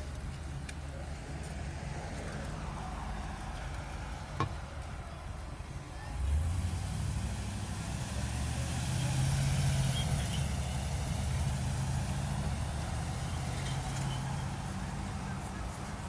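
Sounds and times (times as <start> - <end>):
street traffic: 0.0 - 16.0
truck engine running: 6.2 - 16.0.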